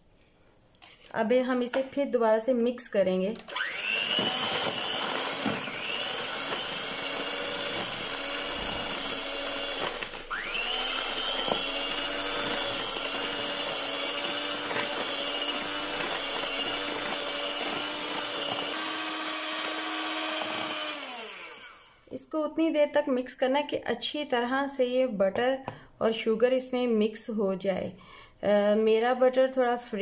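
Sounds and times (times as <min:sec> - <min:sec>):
electric hand mixer running: 0:03.5 - 0:22.1.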